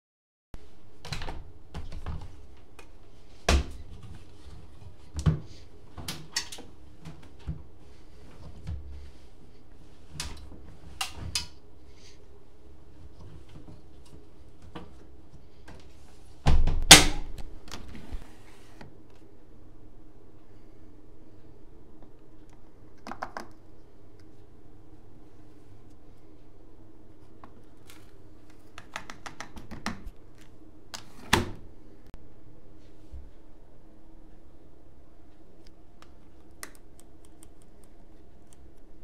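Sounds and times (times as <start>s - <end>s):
washing machine door clicks: 16.5s - 17.4s.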